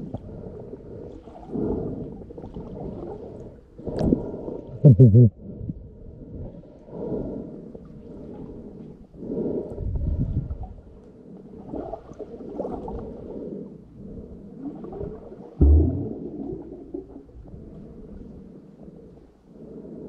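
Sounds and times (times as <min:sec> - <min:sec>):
muffled underwater sloshing: 0:00.0 - 0:20.0
dull thump: 0:15.6 - 0:16.2.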